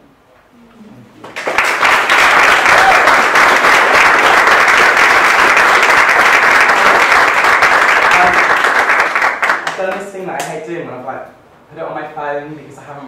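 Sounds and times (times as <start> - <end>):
audience applause: 1.2 - 10.0.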